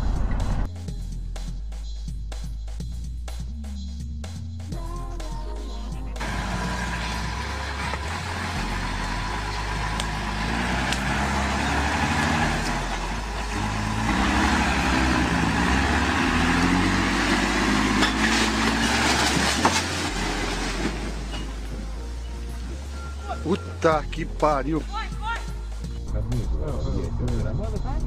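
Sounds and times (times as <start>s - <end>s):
heavy truck engine under load: 6.2s - 23.2s
bridge cracking and crashing: 9.8s - 21.7s
wooden bridge rumble and clatter: 17.8s - 22.1s.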